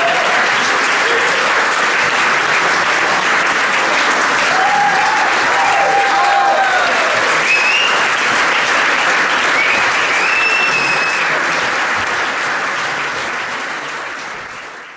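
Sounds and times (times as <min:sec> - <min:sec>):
audience applauding: 0:00.0 - 0:14.9
high drawn-out whistles: 0:07.5 - 0:08.0, 0:09.6 - 0:11.2.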